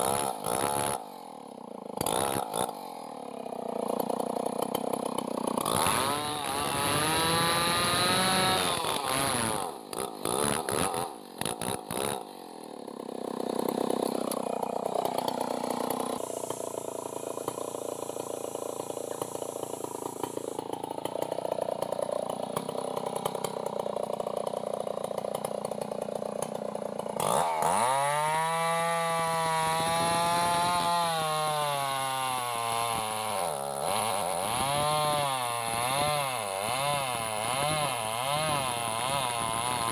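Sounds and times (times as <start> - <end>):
chainsaw revving: 0.0 - 39.9.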